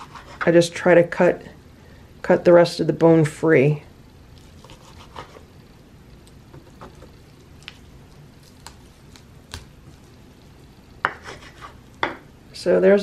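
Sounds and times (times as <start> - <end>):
knife cutting wet meat: 4.4 - 5.4.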